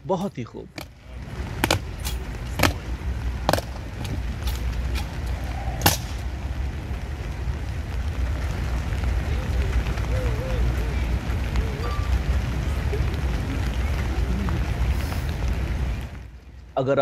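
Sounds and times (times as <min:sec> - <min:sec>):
boots marching on stone paving: 0:00.2 - 0:08.6
low rumble: 0:00.7 - 0:16.7
boots stamping: 0:03.4 - 0:04.7.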